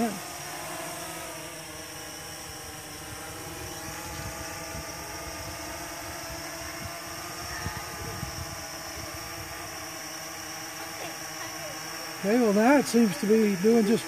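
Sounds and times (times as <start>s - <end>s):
drone propellers whining: 0.0s - 14.0s
wind rumble on microphone: 3.0s - 9.8s.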